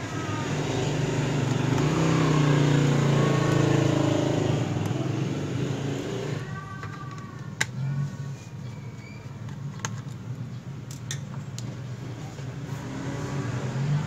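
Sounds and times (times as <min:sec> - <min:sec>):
motor vehicle engine passing: 0:00.0 - 0:06.5, 0:12.1 - 0:14.0.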